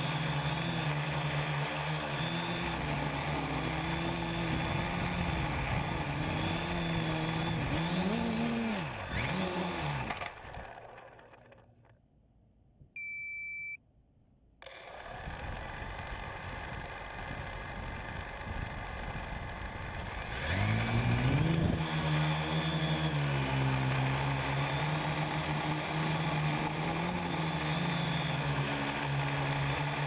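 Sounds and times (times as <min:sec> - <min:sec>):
drone propellers buzzing: 0:00.0 - 0:11.6, 0:14.6 - 0:30.0
short electronic beep: 0:13.0 - 0:13.8.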